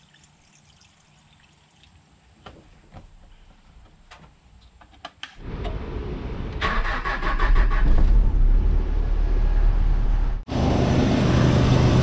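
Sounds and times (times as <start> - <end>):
pickup engine starting: 5.4 - 10.4.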